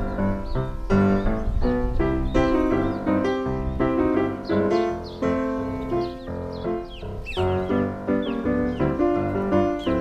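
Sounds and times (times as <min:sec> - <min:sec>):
piano tune: 0:00.0 - 0:10.0
high falling chirps: 0:02.1 - 0:10.0.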